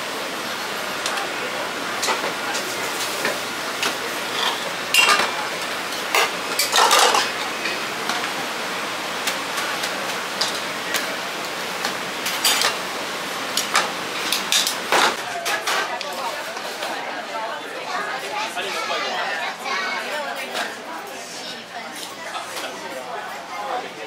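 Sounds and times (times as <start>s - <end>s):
dishes and cutlery clinking: 4.3s - 5.4s, 6.0s - 7.8s.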